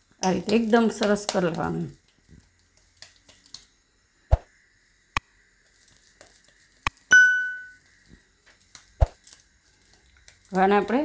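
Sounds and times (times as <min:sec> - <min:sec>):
bright bell ding: 0:07.1 - 0:07.8.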